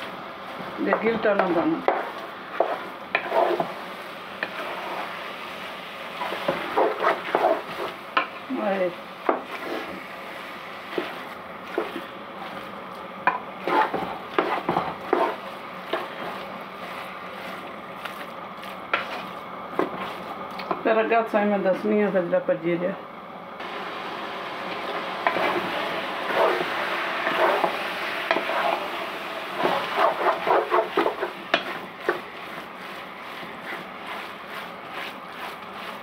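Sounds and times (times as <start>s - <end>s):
mince sizzling: 0.0s - 22.5s, 23.6s - 36.0s
spatula scraping a pot: 0.9s - 5.2s, 6.1s - 10.0s, 10.8s - 12.7s, 13.3s - 20.3s, 25.2s - 36.0s.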